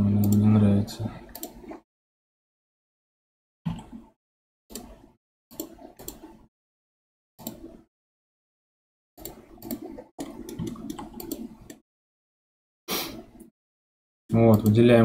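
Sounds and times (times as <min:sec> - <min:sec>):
mouse and keyboard clicks: 0:09.2 - 0:11.8.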